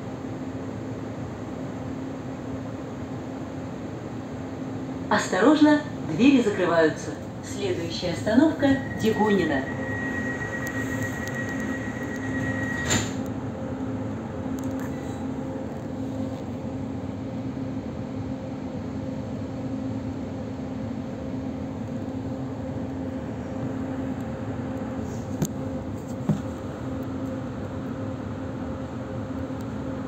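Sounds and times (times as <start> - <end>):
rumble of running train: 0.0 - 30.0
steady low hum: 0.1 - 30.0
high steady tone: 7.5 - 13.1
click: 10.6 - 13.3, 14.6 - 14.9.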